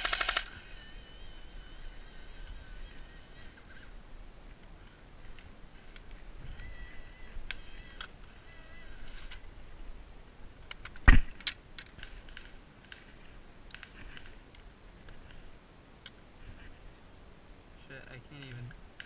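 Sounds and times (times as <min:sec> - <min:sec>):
airsoft gun clicks and clatter: 0:00.0 - 0:00.6, 0:10.6 - 0:13.1, 0:13.7 - 0:15.4, 0:18.3 - 0:19.0.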